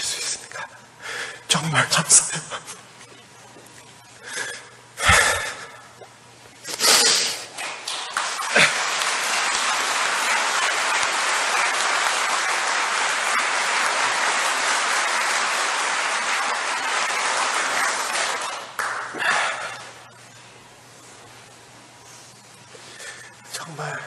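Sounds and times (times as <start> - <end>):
audience applauding: 7.5 - 20.0.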